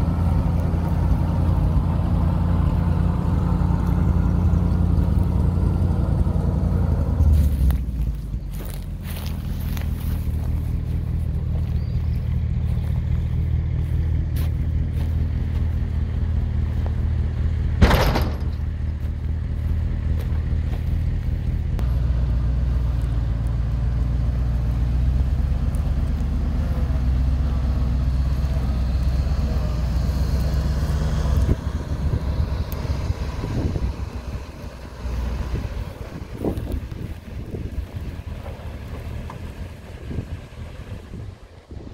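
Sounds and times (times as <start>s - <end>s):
truck engine idling: 0.0s - 41.9s
loud knock: 17.8s - 18.6s.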